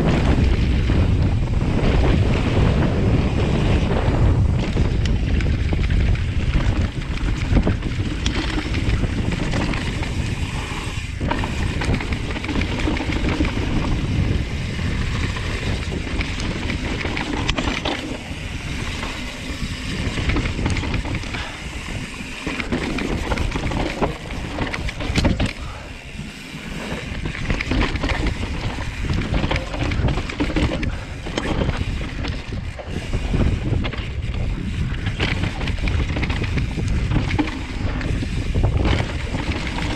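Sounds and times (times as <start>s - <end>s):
bike rattling and knocking: 0.0s - 39.9s
wind buffeting microphone: 0.0s - 39.9s
tyres rolling over stones: 6.6s - 34.2s.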